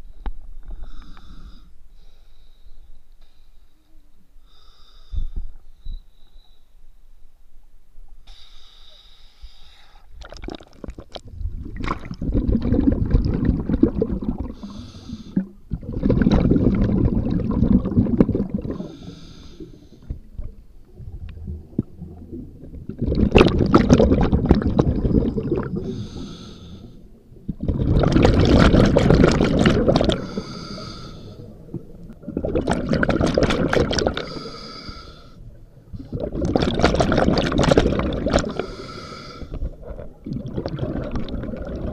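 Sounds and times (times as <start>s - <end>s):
bubbling exhalations underwater: 10.2s - 19.1s, 20.1s - 26.4s, 27.3s - 34.6s, 35.9s - 41.9s
hissing regulator inhalations: 14.6s - 15.6s, 18.7s - 20.3s, 25.8s - 27.2s, 30.1s - 31.6s, 34.1s - 36.2s, 38.4s - 39.8s.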